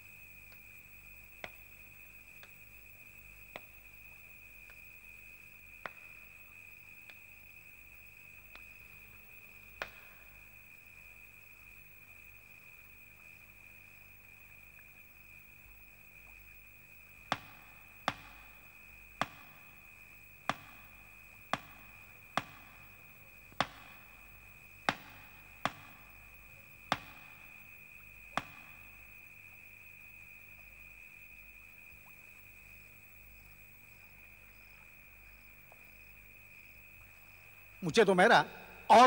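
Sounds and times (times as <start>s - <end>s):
crickets trilling: 0.0s - 39.0s
shoe tapping on hard floor: 17.3s - 18.4s, 19.2s - 19.6s, 21.6s - 22.8s, 23.6s - 24.0s.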